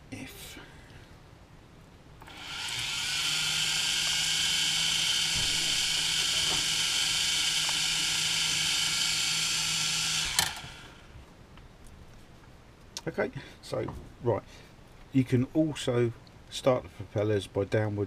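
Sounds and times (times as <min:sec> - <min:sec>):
quadcopter motors whining: 0:02.2 - 0:11.1.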